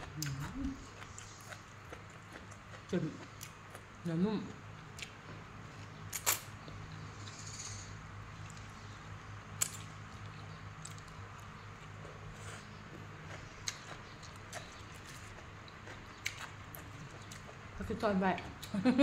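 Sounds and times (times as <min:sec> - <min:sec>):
person chewing: 0:00.0 - 0:04.0, 0:04.9 - 0:07.4, 0:09.6 - 0:17.7.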